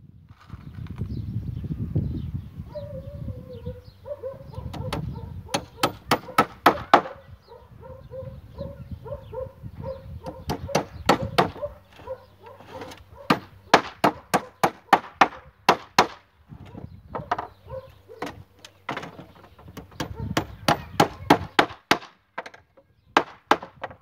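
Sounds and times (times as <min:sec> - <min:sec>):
hammer driving nails into wood: 0:04.7 - 0:07.2, 0:10.3 - 0:11.6, 0:12.8 - 0:16.2, 0:19.8 - 0:22.6, 0:23.2 - 0:24.0.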